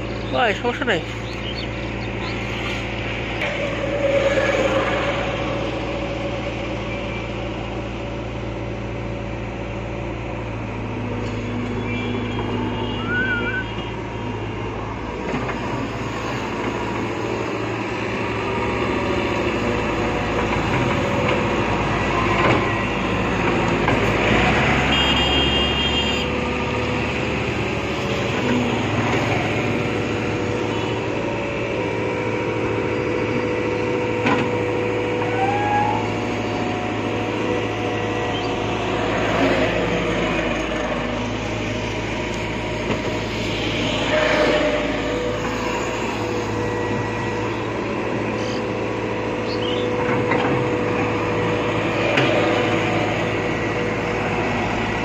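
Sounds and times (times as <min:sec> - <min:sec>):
excavator diesel engine running: 0:00.0 - 0:55.0
high-pitched whine: 0:02.1 - 0:07.7, 0:11.3 - 0:13.9, 0:35.0 - 0:39.6, 0:40.5 - 0:50.0.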